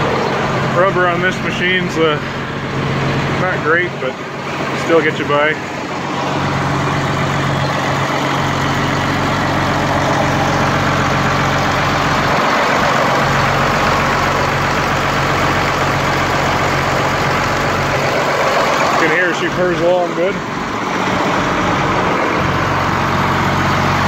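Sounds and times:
diesel tractor engine idling: 0:00.0 - 0:24.0.

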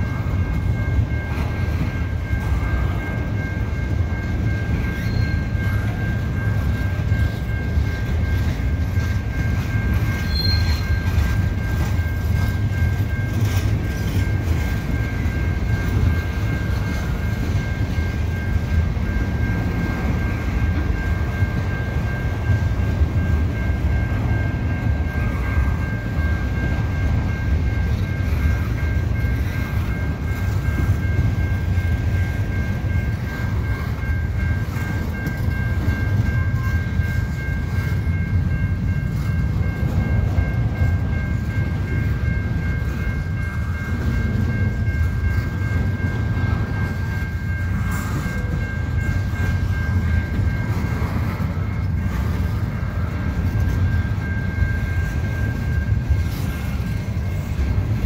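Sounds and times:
freight train rumbling over rails: 0:00.0 - 0:58.0
level crossing warning bell: 0:00.0 - 0:58.0.

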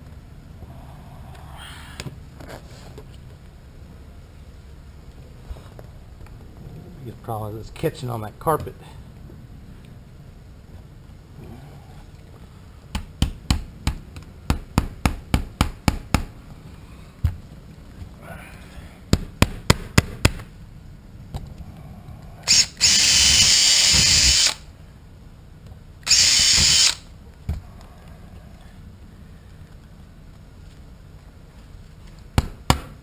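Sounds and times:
cordless drill running: 0:22.4 - 0:24.6, 0:26.0 - 0:27.1.

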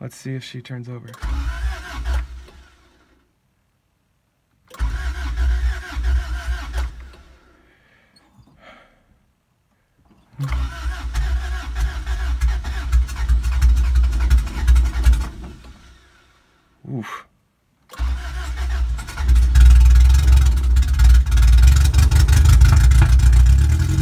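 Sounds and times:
starter motor cranking engine: 0:01.1 - 0:03.2, 0:04.7 - 0:07.4, 0:10.4 - 0:16.4, 0:17.9 - 0:24.0.

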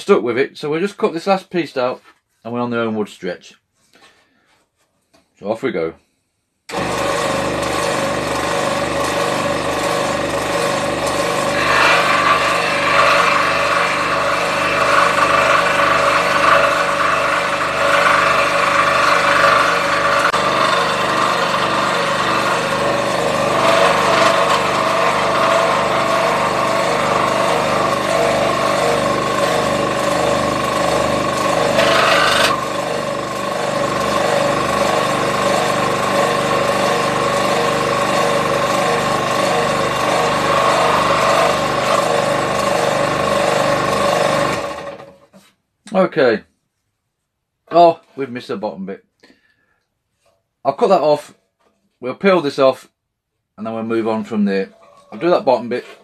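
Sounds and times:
scroll saw cutting: 0:06.7 - 0:45.5.

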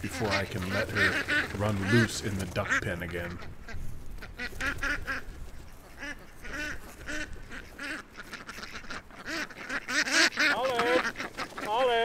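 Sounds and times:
ducks quacking in alarm: 0:00.0 - 0:12.0.

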